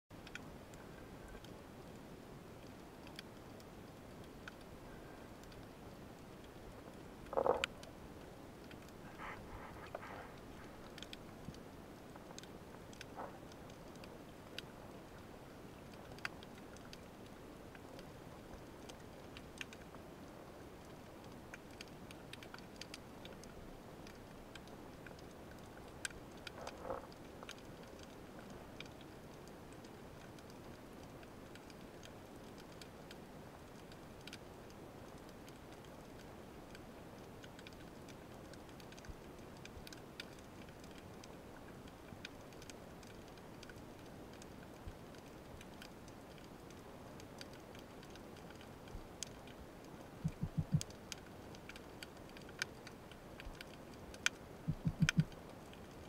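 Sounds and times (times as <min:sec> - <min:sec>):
low underwater hiss: 0:00.4 - 0:39.9, 0:41.0 - 0:56.0
sharp clicks: 0:50.2 - 0:50.9, 0:54.2 - 0:55.4
low thumps: 0:50.3 - 0:50.8, 0:54.7 - 0:55.3.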